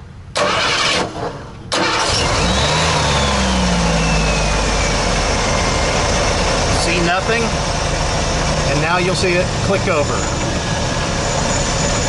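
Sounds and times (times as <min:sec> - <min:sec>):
van engine starting and running: 0:00.0 - 0:12.0
starter motor cranking: 0:01.7 - 0:03.6.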